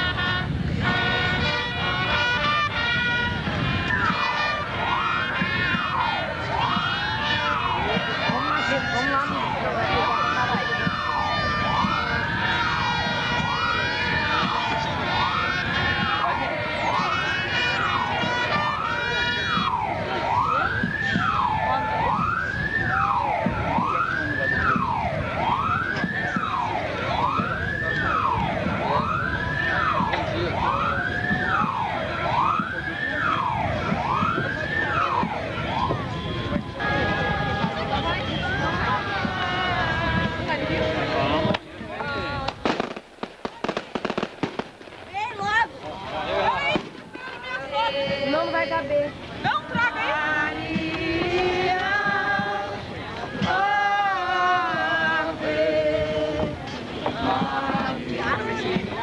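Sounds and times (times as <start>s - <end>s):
wailing siren: 0.0s - 42.3s
people singing a hymn: 33.6s - 43.0s, 47.2s - 59.0s.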